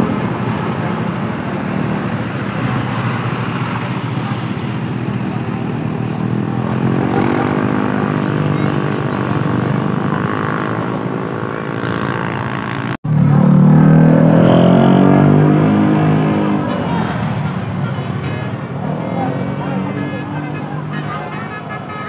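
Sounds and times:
loud engine revving: 0:00.0 - 0:21.6
vehicle engines running: 0:00.0 - 0:22.0.

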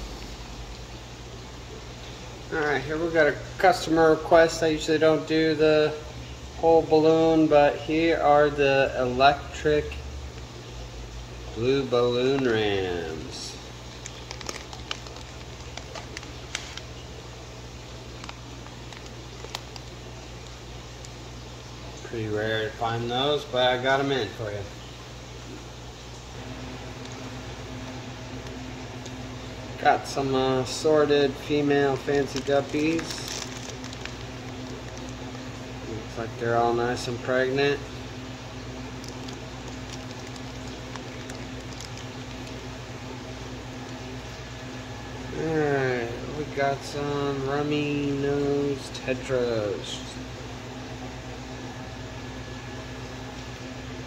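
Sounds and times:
low hum of equipment: 0:00.0 - 0:54.0
plastic bag clicks and crinkles: 0:13.8 - 0:17.0, 0:18.1 - 0:21.2, 0:31.8 - 0:35.6, 0:38.8 - 0:42.8.

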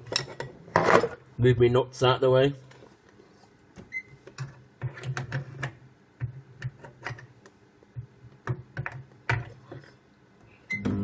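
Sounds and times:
short beep: 0:10.7 - 0:11.0.

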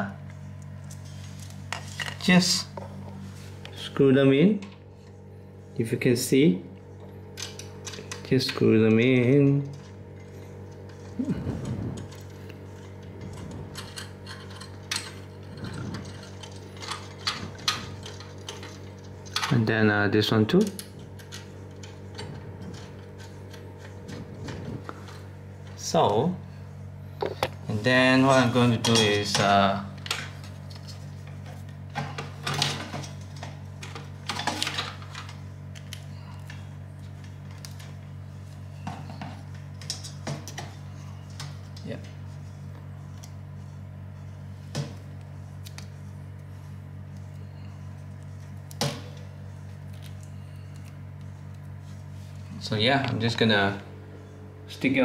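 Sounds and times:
steady low hum: 0:00.0 - 0:55.0
hardware clicks and rattles: 0:07.3 - 0:19.7.

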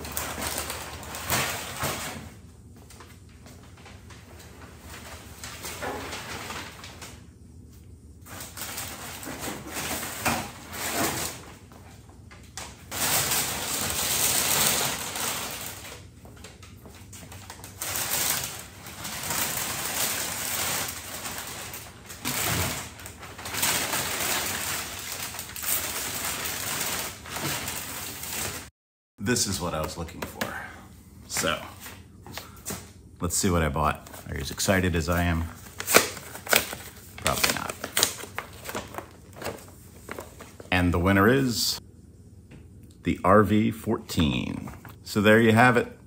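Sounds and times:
packing paper rustling and crinkling: 0:00.0 - 0:07.3, 0:08.2 - 0:28.7, 0:33.9 - 0:40.7.

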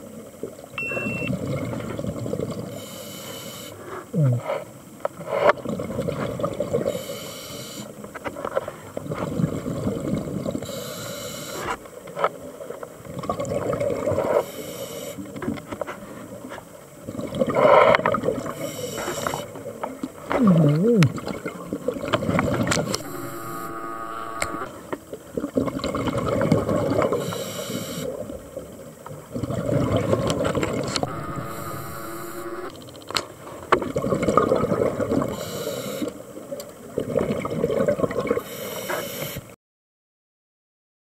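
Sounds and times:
brief wavering tone: 0:00.8 - 0:01.4, 0:22.8 - 0:24.8, 0:31.0 - 0:32.8
diver breathing through regulator: 0:02.7 - 0:05.6, 0:06.8 - 0:08.0, 0:10.6 - 0:11.8, 0:14.2 - 0:15.2, 0:17.5 - 0:19.6, 0:27.1 - 0:28.2, 0:31.0 - 0:32.7, 0:35.3 - 0:36.2, 0:38.4 - 0:39.5
rush of bubbles: 0:05.3 - 0:06.9, 0:13.1 - 0:14.4, 0:19.4 - 0:23.0, 0:25.3 - 0:27.2, 0:28.1 - 0:31.2, 0:33.8 - 0:35.4, 0:36.8 - 0:38.5.

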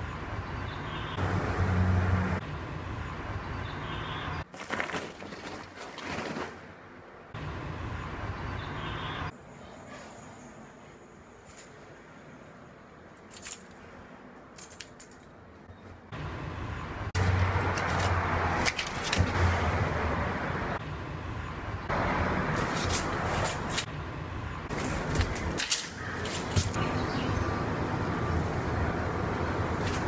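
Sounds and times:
keys jingling: 0:11.4 - 0:11.8, 0:13.1 - 0:13.9, 0:14.5 - 0:15.4, 0:24.7 - 0:26.8.

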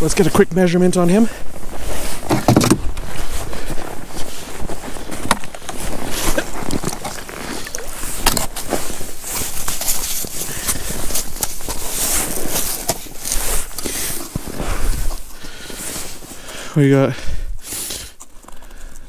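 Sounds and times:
boots crunching in snow: 0:00.0 - 0:17.9
plastic board pulled from sled: 0:01.7 - 0:16.3.

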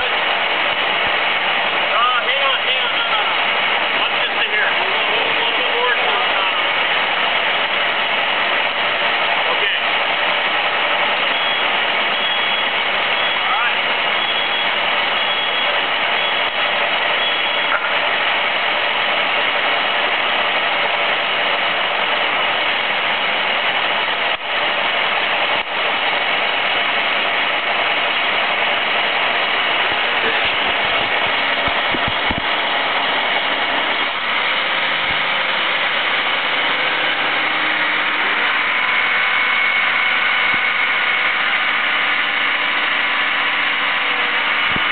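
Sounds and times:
engine running steadily: 0:00.0 - 0:44.9.

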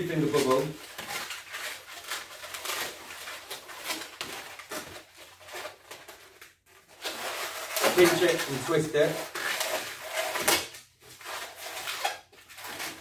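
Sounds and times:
balloons squeaking being twisted: 0:00.0 - 0:13.0.

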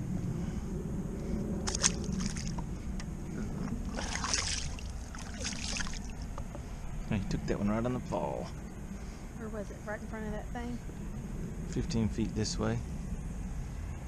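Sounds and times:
steady low rumble: 0:00.0 - 0:14.0
water splashing against a hull: 0:01.6 - 0:02.7, 0:03.7 - 0:06.3.

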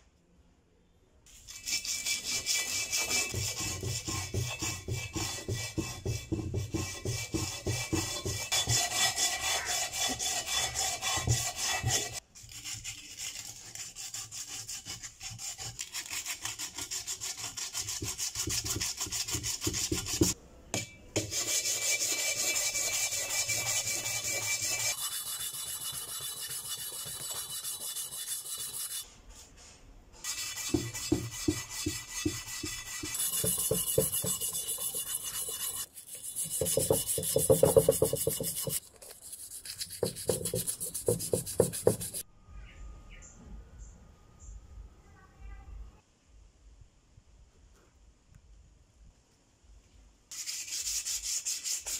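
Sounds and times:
sandpaper rasping on metal wheel: 0:01.3 - 0:20.4, 0:21.2 - 0:29.1, 0:30.2 - 0:42.2, 0:50.3 - 0:51.9.

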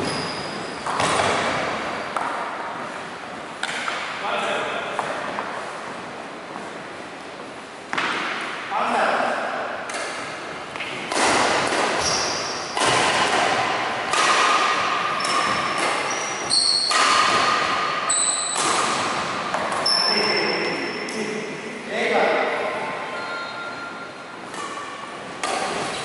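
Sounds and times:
sneakers squeaking: 0:00.0 - 0:04.1, 0:09.9 - 0:21.2, 0:22.4 - 0:26.0
racket hitting shuttlecock: 0:00.8 - 0:02.9, 0:03.5 - 0:04.2, 0:07.9 - 0:08.6, 0:09.8 - 0:19.9, 0:24.4 - 0:26.0.

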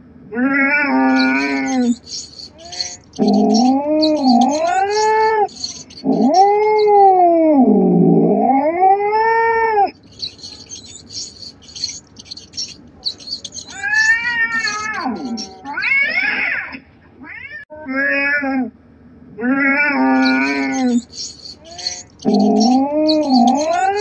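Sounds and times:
cat yowling: 0:00.6 - 0:07.4, 0:13.7 - 0:16.5
faint high chirps: 0:00.9 - 0:07.3, 0:10.0 - 0:15.8, 0:20.2 - 0:24.0.

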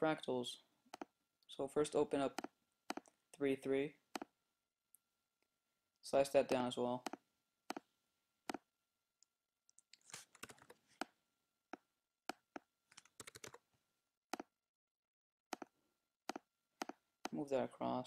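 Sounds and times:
mouse clicks: 0:02.3 - 0:03.2, 0:15.5 - 0:15.7
keyboard keystrokes: 0:12.3 - 0:13.6.

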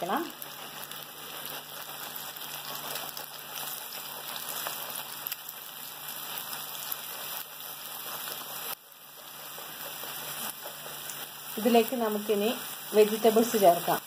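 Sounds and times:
eggs sizzling in hot oil: 0:00.0 - 0:14.0
wooden spatula stirring: 0:07.0 - 0:11.4.

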